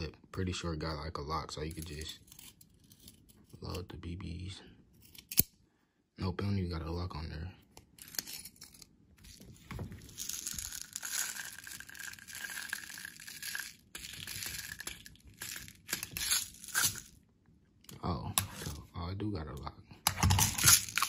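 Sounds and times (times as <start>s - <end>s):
steel bbs rattling in plastic bottle: 10.0s - 17.2s, 20.4s - 21.0s.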